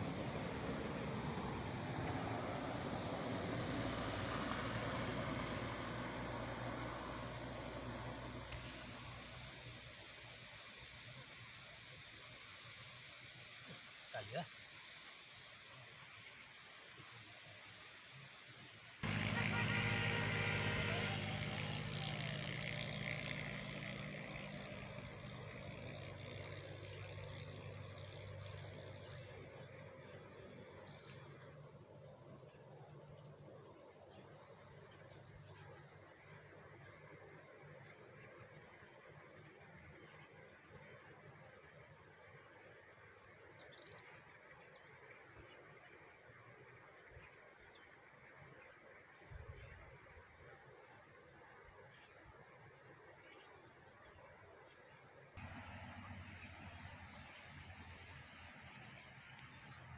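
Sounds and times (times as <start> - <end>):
engine humming: 0.0 - 10.1, 19.0 - 37.2, 55.4 - 59.9
background hiss: 0.0 - 25.3.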